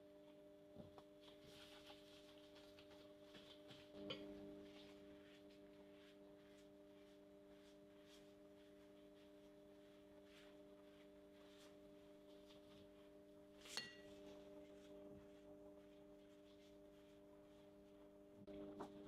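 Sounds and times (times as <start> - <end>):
pastry brush swishing on dough: 1.2 - 19.0.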